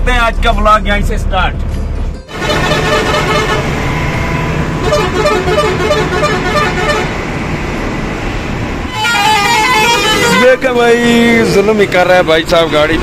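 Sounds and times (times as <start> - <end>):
truck engines rumbling: 0.0 - 13.0
vehicle horns sounding: 2.3 - 7.2, 8.9 - 10.8.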